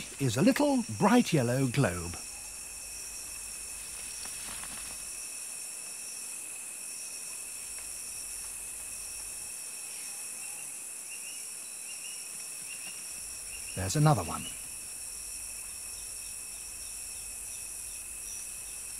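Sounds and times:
insects trilling: 0.0s - 18.9s.

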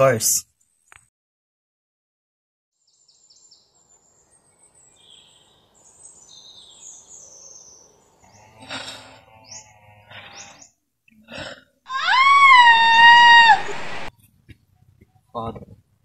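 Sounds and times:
birds chirping: 2.9s - 10.8s.

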